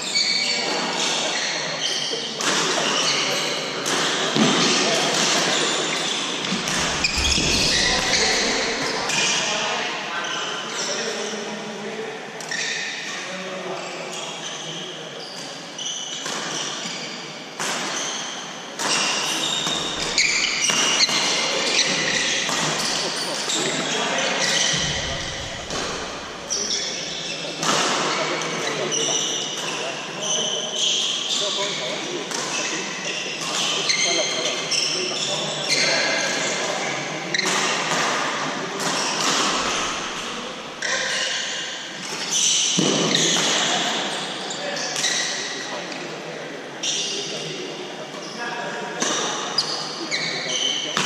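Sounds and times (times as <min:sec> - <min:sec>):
shoes squeaking on wooden floor: 0:05.5 - 0:09.4, 0:19.0 - 0:23.6.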